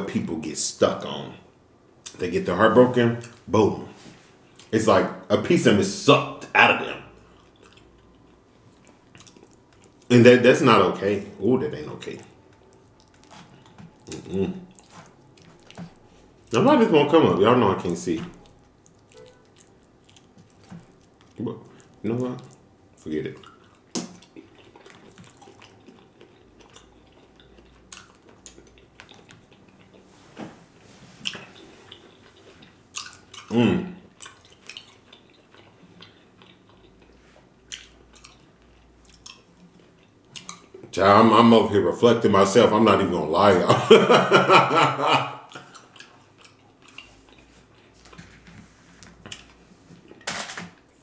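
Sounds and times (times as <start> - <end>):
wet chewing and mouth sounds: 6.8 - 10.4, 11.8 - 16.7, 17.7 - 41.0, 45.0 - 50.2.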